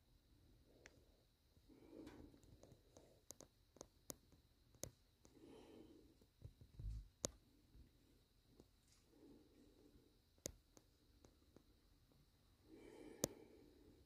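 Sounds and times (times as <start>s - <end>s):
faint clicks: 2.0s - 5.4s.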